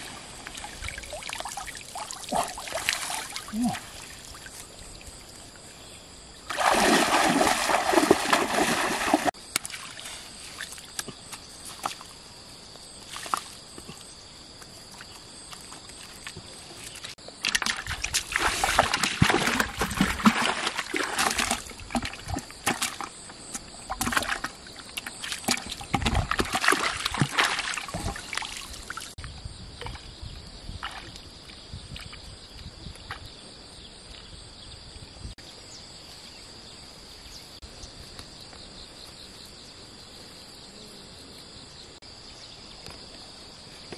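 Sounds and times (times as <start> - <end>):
water pouring off a net: 0.0 - 4.5, 6.5 - 9.3
pond water splashing: 0.0 - 5.6, 6.3 - 12.2, 15.6 - 29.2, 29.8 - 30.2, 30.8 - 32.3.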